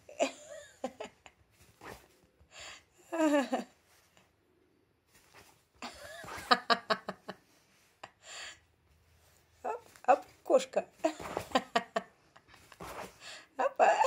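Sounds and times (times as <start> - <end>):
laughter-like voice sounds: 5.8 - 7.9
fingers scratching a fabric blanket: 12.6 - 13.2.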